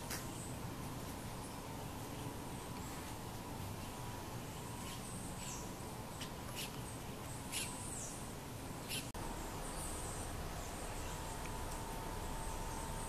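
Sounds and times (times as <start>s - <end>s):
faint steady hum: 0.0s - 13.0s
steady low rumble: 8.2s - 13.0s.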